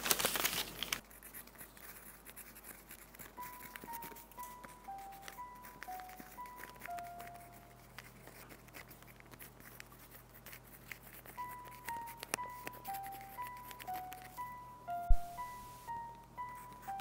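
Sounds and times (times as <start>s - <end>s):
pen writing on paper: 1.1s - 14.4s
soft sparse melody: 2.9s - 9.7s, 10.4s - 17.0s.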